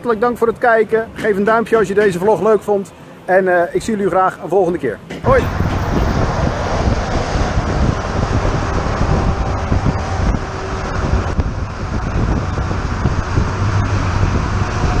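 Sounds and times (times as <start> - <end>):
highway road and tyre noise: 0.0 - 15.0
wind on microphone: 5.2 - 15.0.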